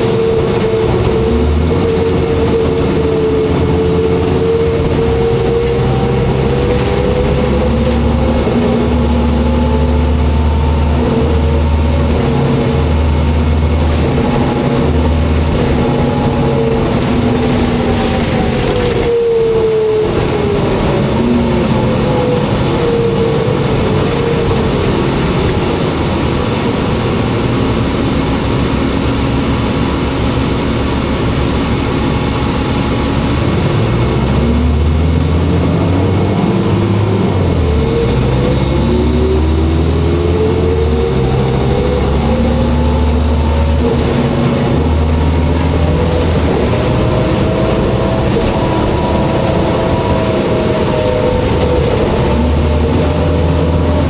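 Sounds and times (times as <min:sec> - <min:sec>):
diesel bus engine droning: 0:00.0 - 0:54.0
transmission whine: 0:00.0 - 0:54.0.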